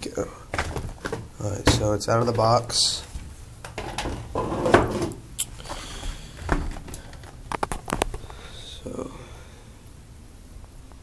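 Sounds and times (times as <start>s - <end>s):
plastic packaging clicks and crinkles: 6.5s - 8.4s.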